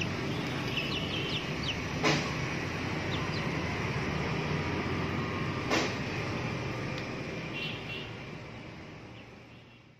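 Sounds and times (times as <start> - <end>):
low rumble with hiss: 0.0 - 7.4.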